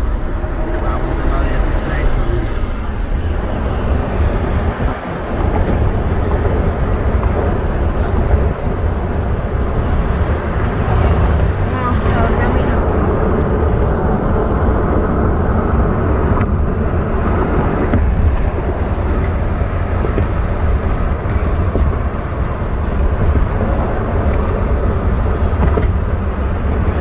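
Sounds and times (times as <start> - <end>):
car tyres and wind rumble: 0.0 - 27.0.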